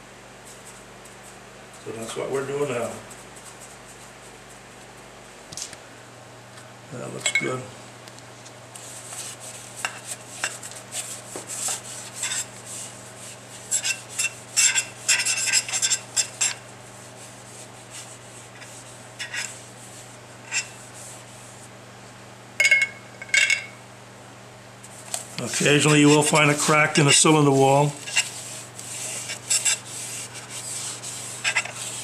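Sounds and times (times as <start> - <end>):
brush scraping metal: 8.8 - 21.7, 24.9 - 32.0.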